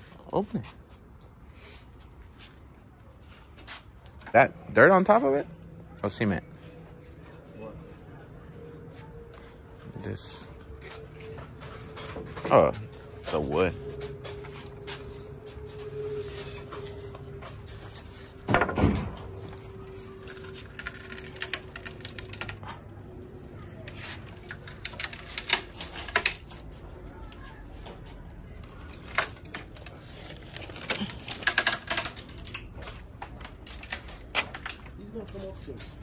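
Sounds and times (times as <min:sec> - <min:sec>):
wooden slats clicking and knocking: 0:20.4 - 0:22.6, 0:23.8 - 0:26.7, 0:28.3 - 0:35.0.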